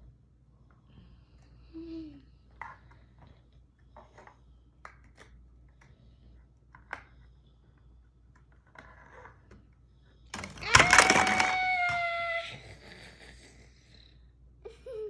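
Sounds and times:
plastic toy blocks clicking: 10.3 - 12.1.

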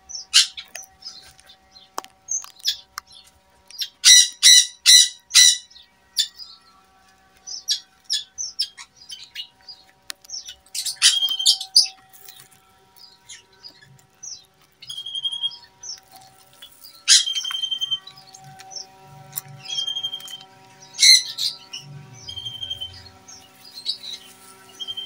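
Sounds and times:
small birds chirping: 0.0 - 25.0
bird whistle: 4.0 - 5.7, 10.8 - 12.0, 14.8 - 15.7, 17.0 - 18.1, 19.6 - 25.0.

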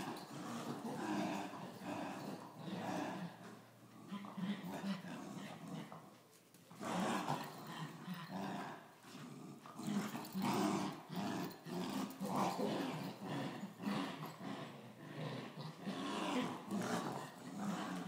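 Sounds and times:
dogs growling in play: 0.0 - 18.0.

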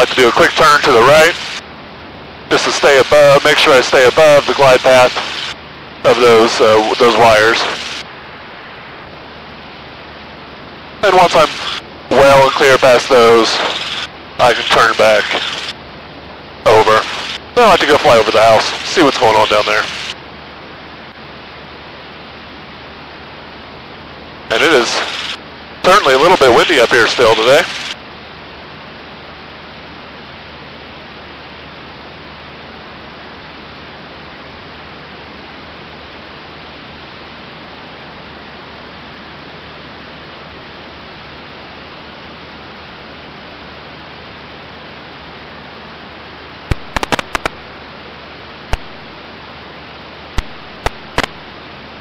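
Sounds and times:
cockpit noise hiss: 0.0 - 52.0
sharp clicks: 46.7 - 47.6, 48.7 - 49.0, 50.4 - 51.4.

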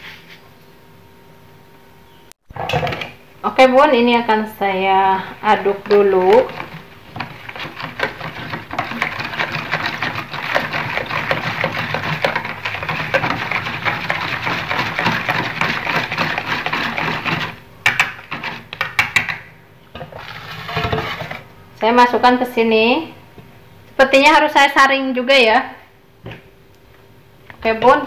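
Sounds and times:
batter sloshing: 4.6 - 19.1
whisk clattering in plastic bowl: 5.7 - 19.4, 20.0 - 21.4
whisk taps: 5.8 - 19.4.

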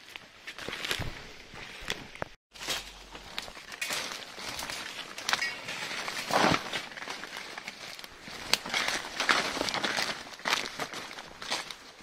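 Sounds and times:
footsteps crunching through dry leaves: 0.0 - 12.0.

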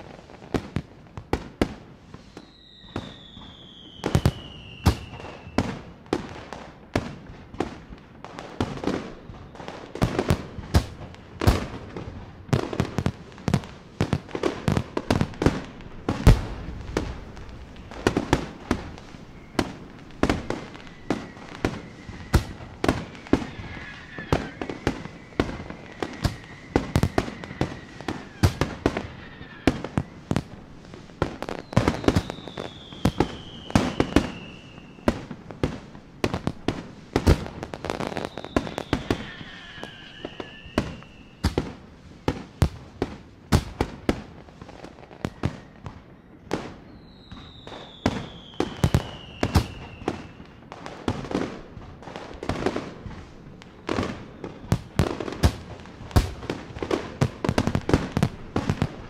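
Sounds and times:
fireworks bangs: 0.0 - 59.0
high descending whistle: 2.3 - 5.6, 16.2 - 30.4, 31.5 - 35.1, 38.0 - 41.4, 46.9 - 50.4.

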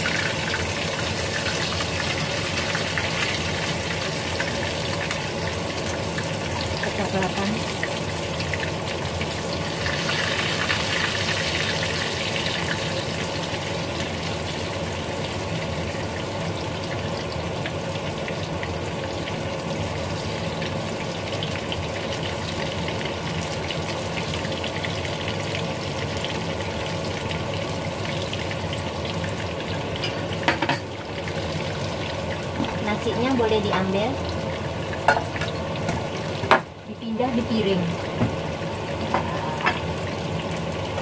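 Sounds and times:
food sizzling in frying pan: 0.0 - 41.0.

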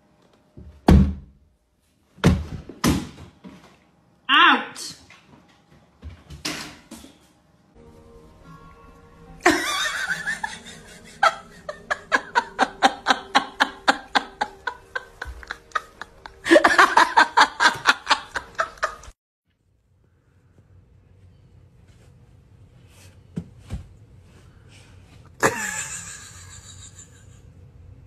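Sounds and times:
faint background music: 7.3 - 19.1
person laughing hard: 9.4 - 19.1, 25.4 - 27.5.

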